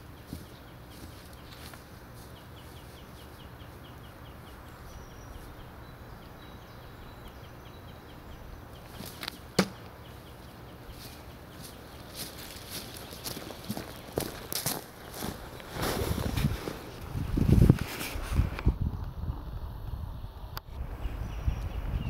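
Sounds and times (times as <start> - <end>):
knife striking wooden target: 9.6 - 9.8.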